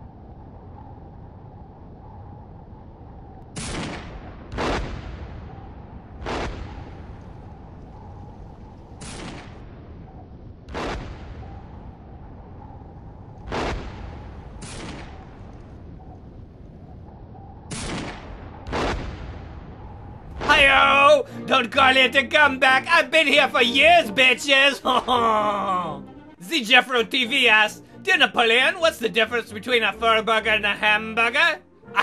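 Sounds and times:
gunfire and artillery blasts: 3.5s - 12.1s, 13.4s - 16.3s, 17.7s - 20.9s.

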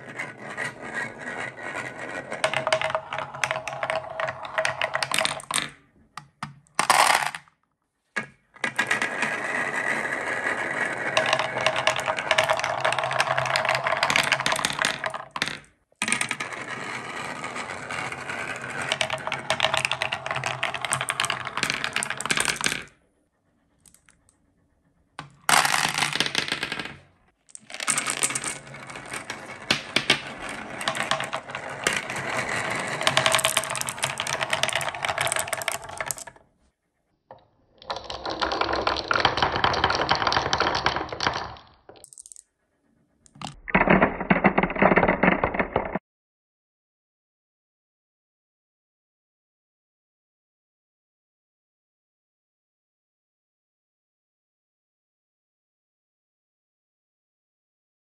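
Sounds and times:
marbles clattering on wooden run: 0.3s - 7.5s, 10.6s - 17.5s, 18.2s - 23.0s, 25.2s - 36.4s, 37.8s - 42.4s, 43.3s - 46.0s.

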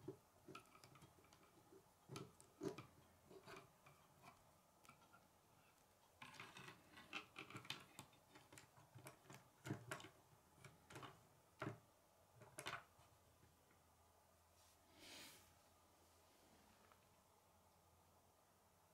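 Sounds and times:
plastic pieces clicking on wooden table: 6.2s - 11.8s.

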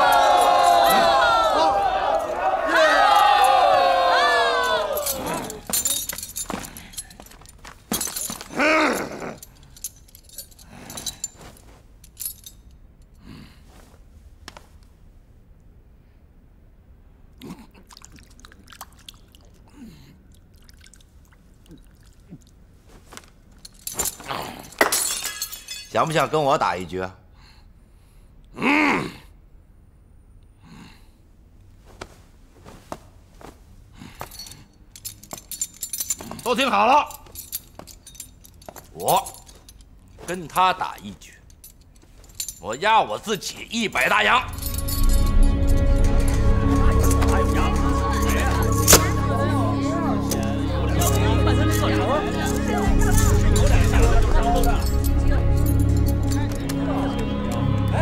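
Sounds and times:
man's loud cry: 0.0s - 5.7s
metal clinking and jangling: 4.6s - 13.2s, 23.2s - 26.3s, 34.0s - 57.9s.

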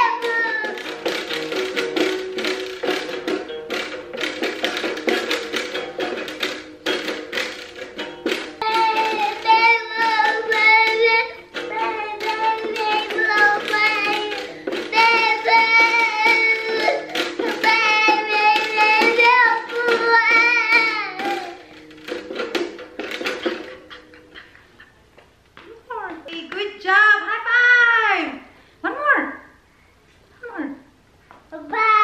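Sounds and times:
toddler singing: 0.0s - 1.0s, 8.6s - 21.7s, 31.5s - 32.0s
small guitar strumming: 0.0s - 24.5s.

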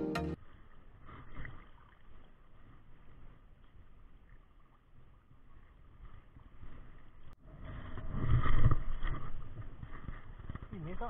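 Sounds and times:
sea water sloshing and lapping: 0.6s - 10.2s
wind on microphone: 5.5s - 11.0s.

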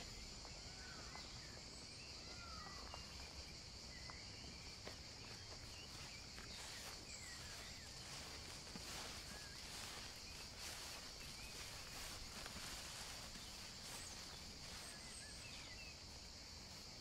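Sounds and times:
high-pitched insect drone: 6.0s - 17.0s.

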